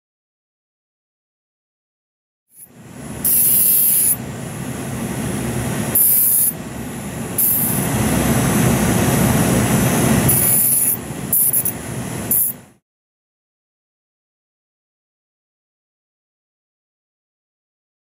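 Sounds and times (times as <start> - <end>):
micromotor handpiece whirring: 2.6 - 4.2, 5.9 - 6.6, 7.3 - 8.0, 9.4 - 12.6
high-pitched squealing hiss: 2.6 - 4.3, 5.6 - 12.6.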